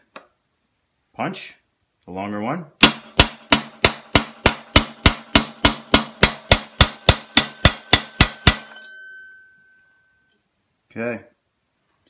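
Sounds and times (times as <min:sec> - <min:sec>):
hammer striking steel pin punch: 0:02.8 - 0:09.1
high metallic ringing note: 0:07.4 - 0:10.4.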